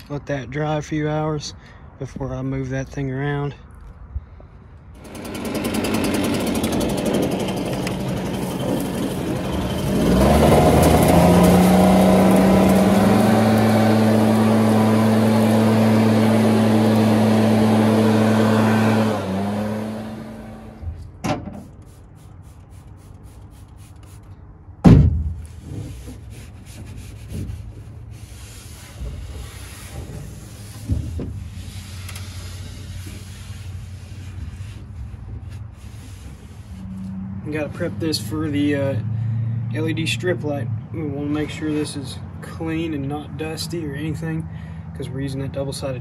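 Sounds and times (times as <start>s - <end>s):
leaf blower running: 5.0s - 20.9s.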